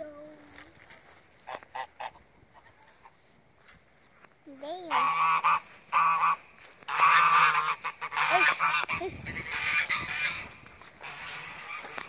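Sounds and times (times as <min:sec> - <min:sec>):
geese honking: 0:01.4 - 0:03.2, 0:04.9 - 0:12.0.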